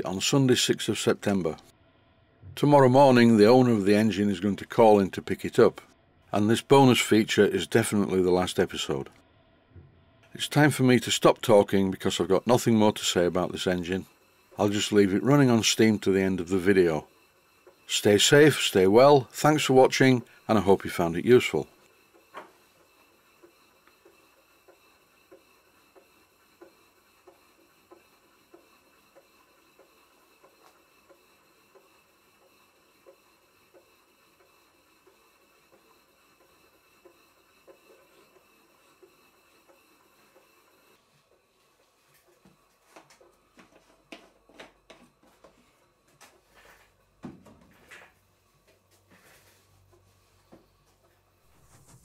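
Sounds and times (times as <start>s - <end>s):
model steam engine exhaust ticks: 21.8s - 40.8s.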